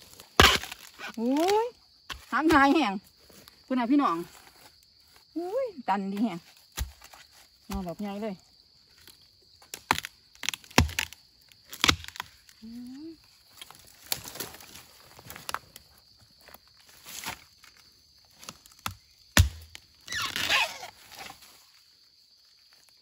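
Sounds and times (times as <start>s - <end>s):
bamboo cracking and chopping: 0.0s - 3.4s, 6.1s - 8.2s, 8.9s - 12.8s, 13.4s - 21.8s.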